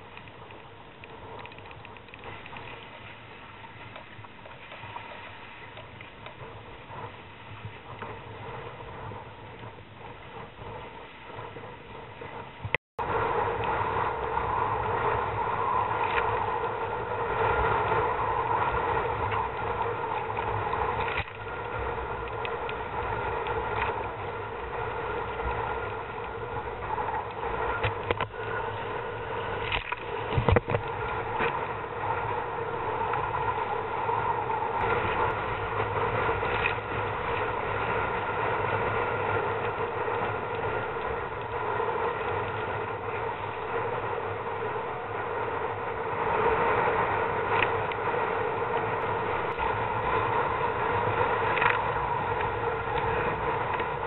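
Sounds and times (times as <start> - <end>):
steady hum: 0.0 - 54.0
wind on microphone: 0.0 - 54.0
water slapping against kayak hull: 26.2 - 31.6.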